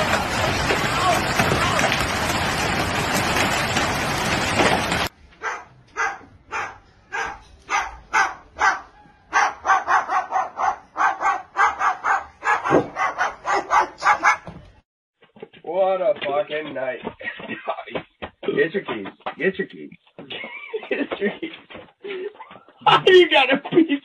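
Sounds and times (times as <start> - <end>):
dog barking: 5.4 - 14.5.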